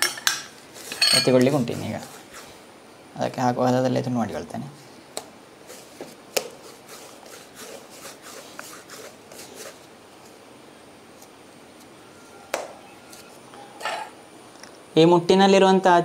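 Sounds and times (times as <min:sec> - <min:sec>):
hands patting dough: 0:05.1 - 0:10.4.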